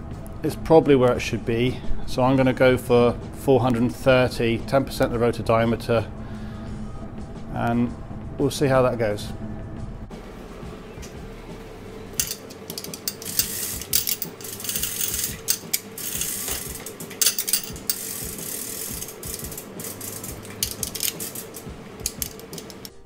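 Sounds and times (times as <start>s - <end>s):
chain links rattling: 12.2s - 22.9s
ratchet clicking: 12.2s - 23.0s.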